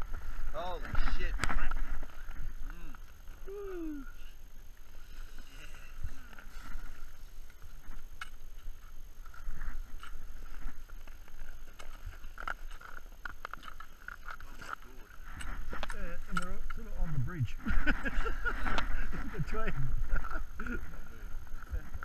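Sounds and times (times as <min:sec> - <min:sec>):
wind rumble on microphone: 0:15.1 - 0:22.0.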